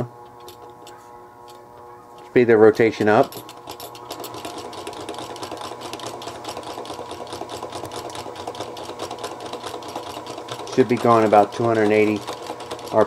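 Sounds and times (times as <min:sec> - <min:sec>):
rotary evaporator motor whirring: 0:00.0 - 0:13.0.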